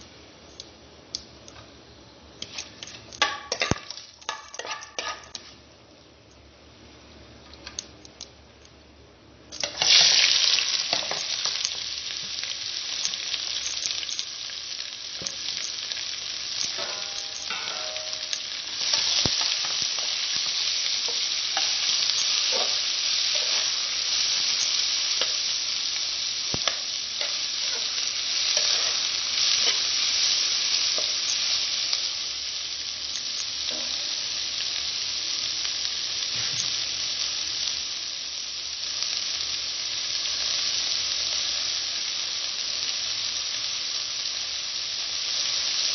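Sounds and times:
onions sizzling in hot oil: 2.3 - 5.6, 9.5 - 45.9
metal spoon knocking and scraping pot: 3.2 - 5.4, 16.8 - 18.4.

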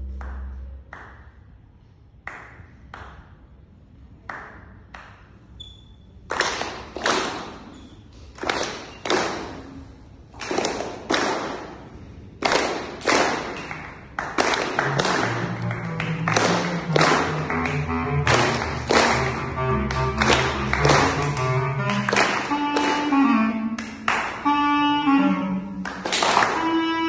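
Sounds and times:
hand claps echoing in a hall: 0.0 - 24.6, 25.6 - 27.0.

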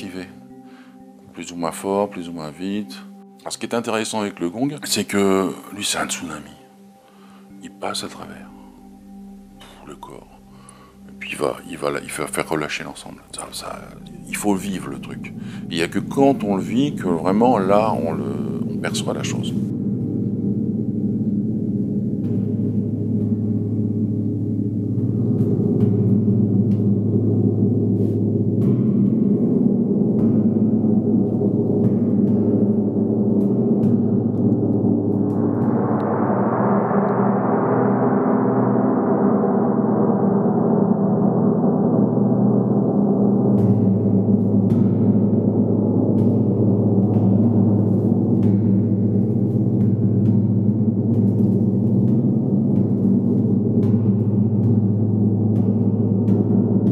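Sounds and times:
gong low drone: 0.0 - 56.9.

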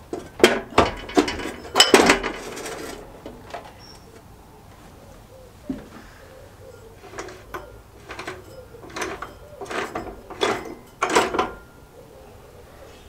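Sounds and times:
rusty metal scraping: 0.0 - 4.3, 5.9 - 12.0.

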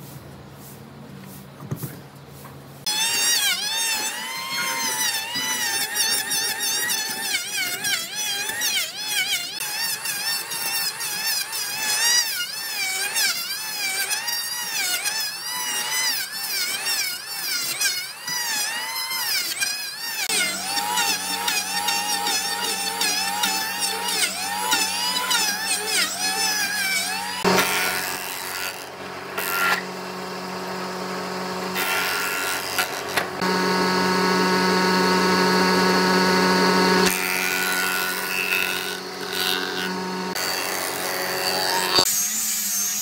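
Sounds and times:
electric planer shaving wood: 2.9 - 43.0.

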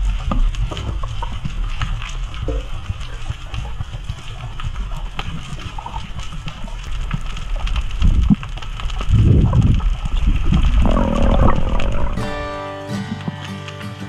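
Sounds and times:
low underwater rumble: 0.0 - 13.3
surges of moving water: 0.0 - 13.8
underwater crackle of clicks: 0.0 - 14.0.

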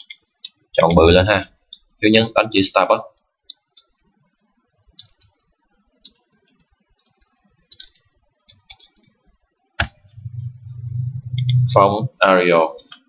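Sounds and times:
low hum: 10.0 - 12.2.

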